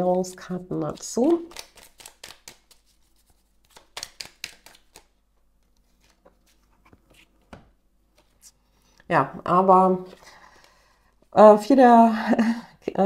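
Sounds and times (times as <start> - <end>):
cards clicking and slapping: 0.8 - 5.1.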